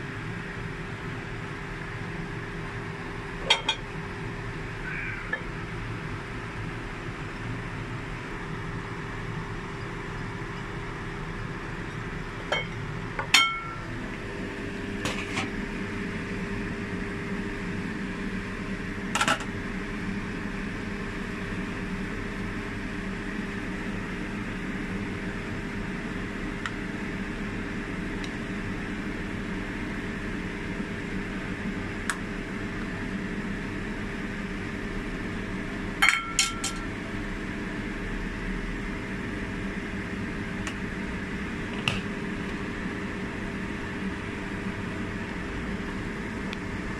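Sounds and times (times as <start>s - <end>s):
stove hum and hiss: 0.0s - 46.9s
utensil clinking on dishes: 36.0s - 36.8s.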